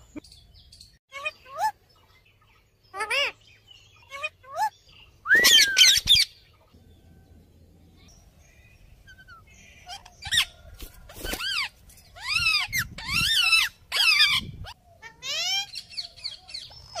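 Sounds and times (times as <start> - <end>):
parakeets screeching: 2.9 - 3.4, 9.1 - 17.0.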